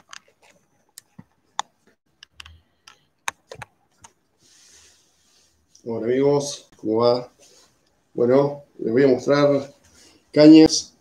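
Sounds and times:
fingers tapping on camera: 1.0 - 4.2.

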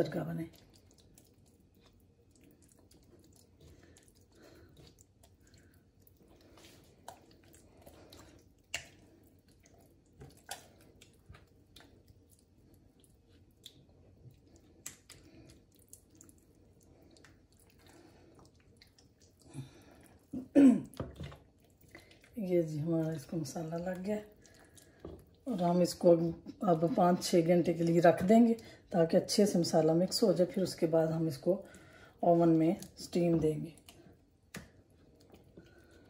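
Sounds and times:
wet squelching of hands in marinade: 0.3 - 28.4.

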